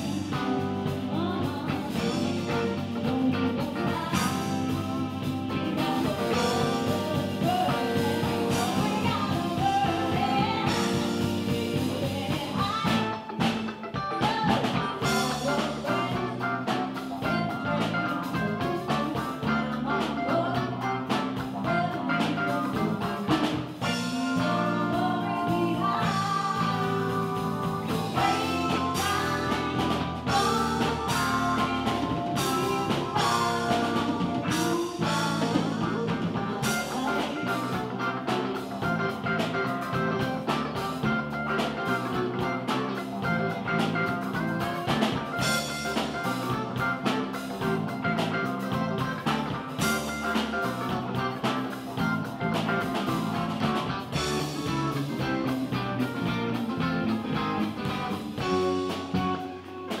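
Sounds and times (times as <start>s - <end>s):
bass guitar: 0.0s - 60.0s
drum kit: 0.0s - 60.0s
funk band playing: 0.0s - 60.0s
keyboards: 0.0s - 60.0s.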